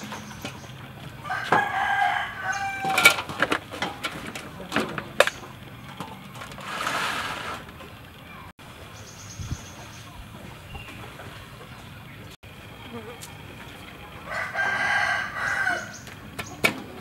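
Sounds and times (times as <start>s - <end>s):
rooster crowing: 1.2s - 3.3s, 14.2s - 16.0s
metal tray and basin clanking: 2.6s - 7.9s.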